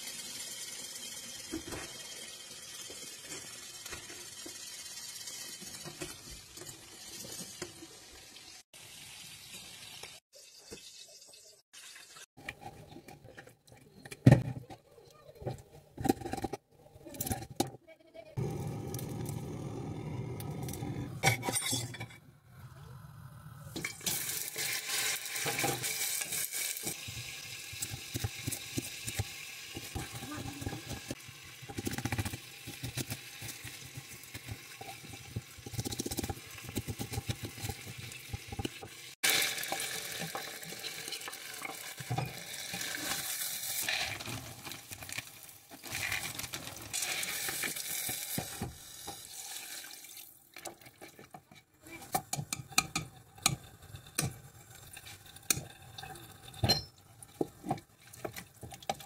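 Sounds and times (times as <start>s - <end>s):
wooden spoon stirring in metal pot: 12.4s - 17.8s, 25.4s - 49.2s, 50.5s - 59.0s.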